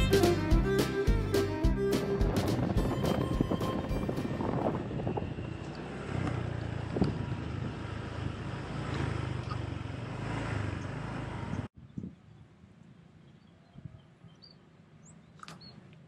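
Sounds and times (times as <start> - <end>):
wind noise on microphone: 0.0 - 5.7, 6.8 - 7.8, 11.7 - 12.5.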